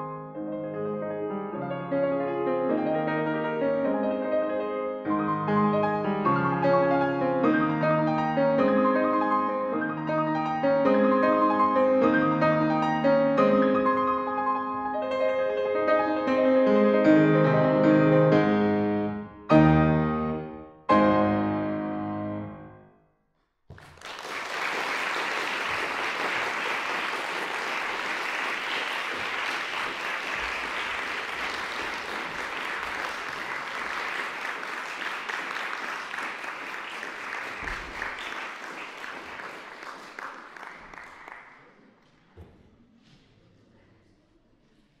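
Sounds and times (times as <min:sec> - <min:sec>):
audience applause: 0:23.7 - 0:41.7.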